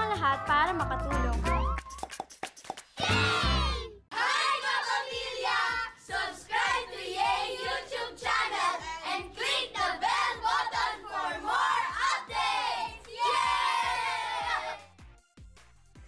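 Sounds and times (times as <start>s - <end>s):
music: 0.0s - 16.0s
children singing and shouting: 3.0s - 14.9s.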